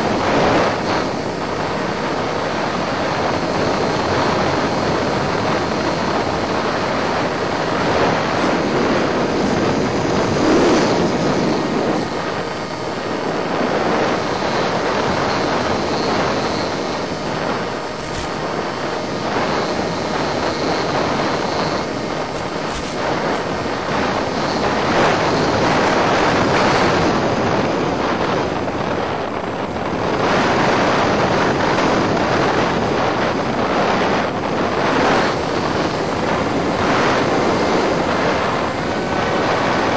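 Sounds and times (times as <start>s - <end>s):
rushing airflow noise: 0.0s - 39.9s.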